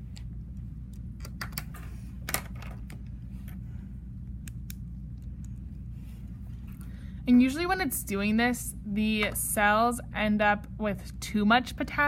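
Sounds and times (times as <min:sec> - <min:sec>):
low hum: 0:00.0 - 0:11.6.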